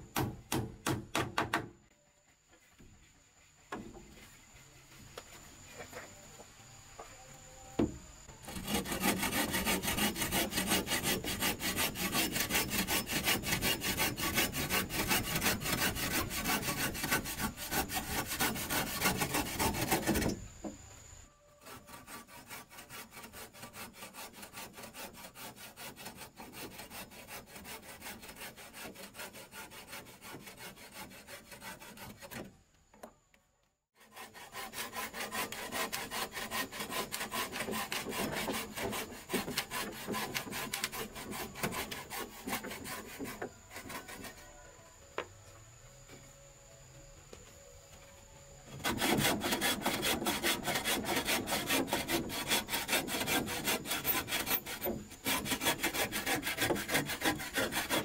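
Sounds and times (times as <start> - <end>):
bow saw cutting timber: 7.8 - 20.8, 21.5 - 32.5, 34.0 - 44.7, 48.7 - 58.0.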